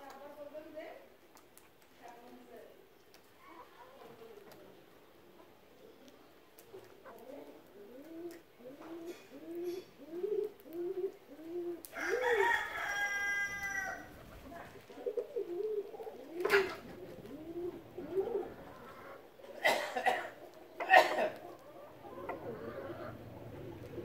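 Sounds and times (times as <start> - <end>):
rooster crowing: 11.9 - 14.1.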